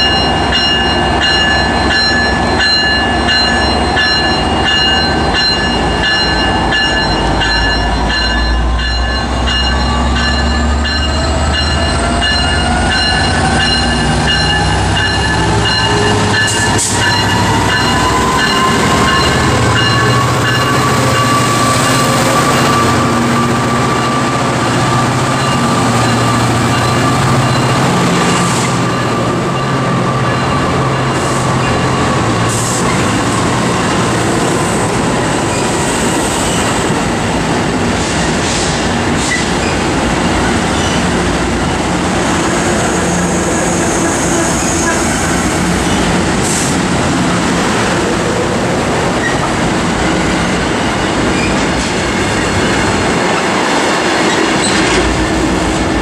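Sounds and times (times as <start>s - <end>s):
locomotive bell ringing: 0.0s - 34.7s.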